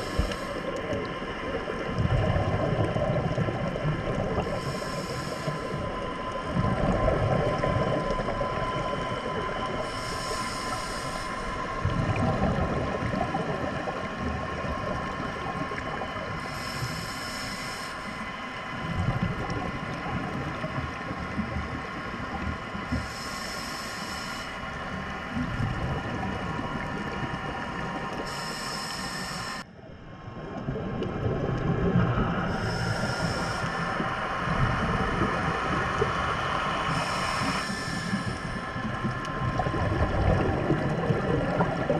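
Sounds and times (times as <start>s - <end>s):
faint steady tones: 0.0s - 41.9s
low rumbling wash: 0.0s - 41.9s
steady mechanical hum: 0.0s - 41.9s
high hiss: 9.9s - 11.5s, 16.4s - 18.2s, 22.9s - 24.6s, 28.3s - 29.7s, 32.5s - 34.0s, 36.9s - 38.6s.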